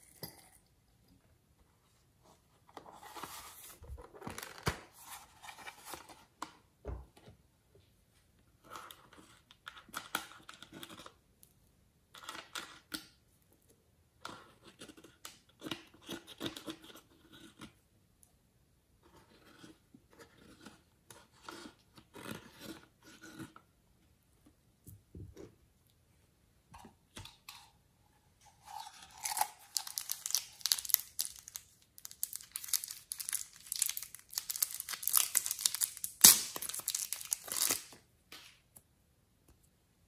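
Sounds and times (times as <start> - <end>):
soft handling and rubbing: 1.5 - 4.3
plastic packet crinkling: 29.1 - 38.0.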